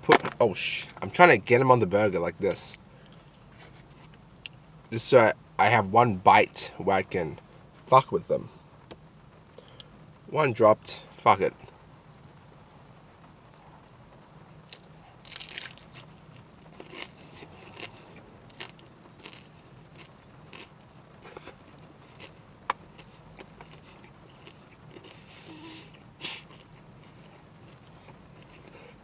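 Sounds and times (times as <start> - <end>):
steady low hum: 0.0 - 29.0
person chewing food: 14.7 - 29.0.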